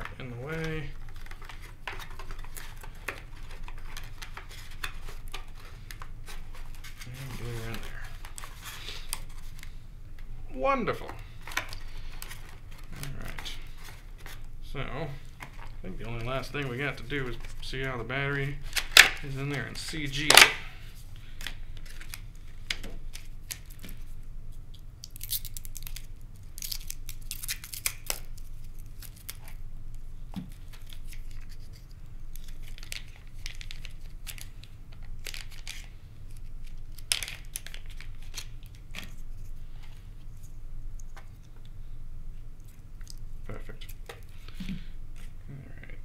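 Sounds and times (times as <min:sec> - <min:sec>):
packaging torn and crinkled: 0:21.8 - 0:29.6, 0:30.5 - 0:39.5.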